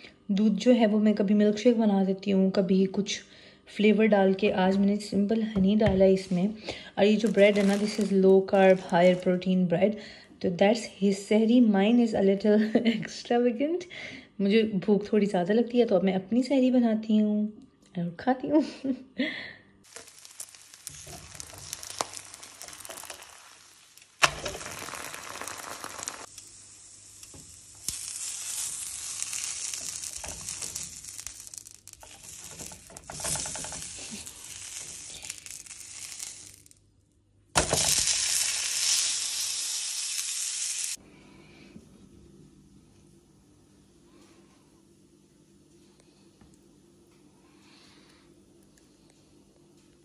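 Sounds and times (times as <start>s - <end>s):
food sizzling in hot oil: 7.1s - 9.2s, 19.9s - 36.8s, 37.6s - 41.0s.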